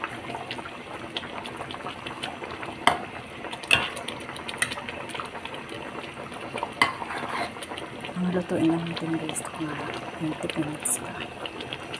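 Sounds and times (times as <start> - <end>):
sauce bubbling: 0.0 - 11.9
metal spatula scraping a wok: 6.9 - 7.6.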